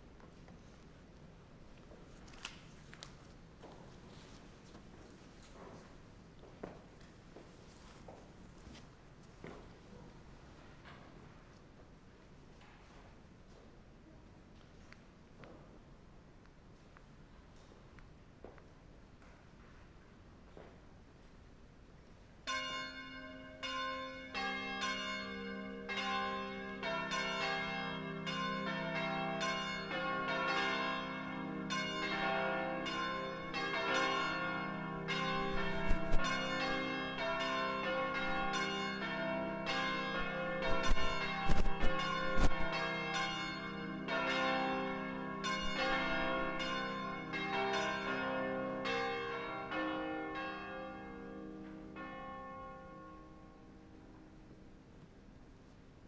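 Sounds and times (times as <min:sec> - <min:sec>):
bells ringing rapidly: 0:39.7 - 0:44.6.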